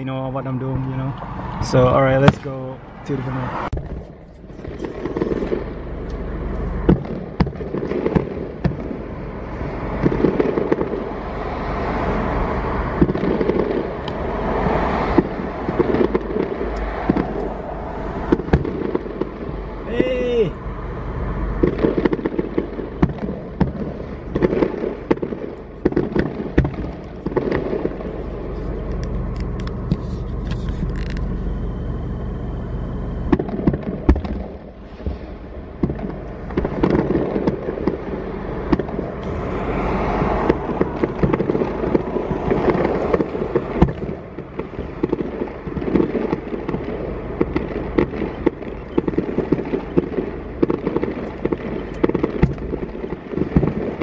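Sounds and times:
fireworks bursting: 0:00.0 - 0:54.0.

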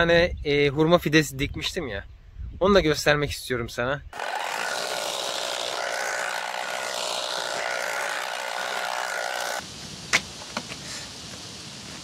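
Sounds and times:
small motor whining: 0:04.2 - 0:09.6.

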